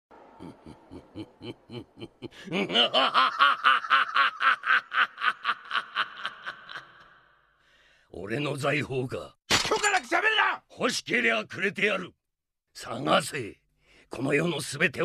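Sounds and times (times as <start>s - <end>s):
man laughing deeply: 0.3s - 7.2s.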